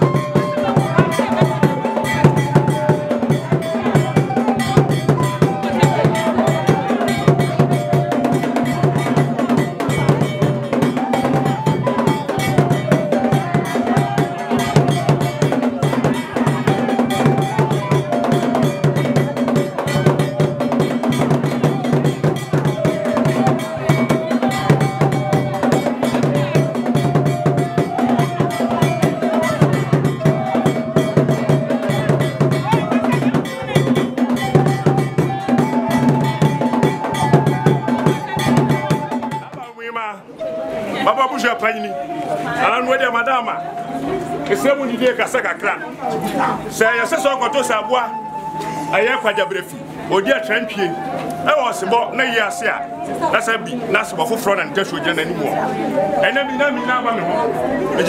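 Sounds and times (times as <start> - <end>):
drums: 0.0 - 39.7
stepping melody: 0.0 - 58.0.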